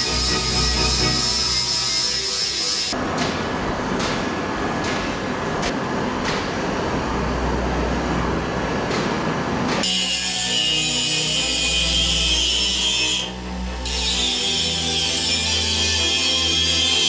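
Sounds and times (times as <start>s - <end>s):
power tool scraping metal: 0.0s - 3.0s, 9.8s - 17.0s.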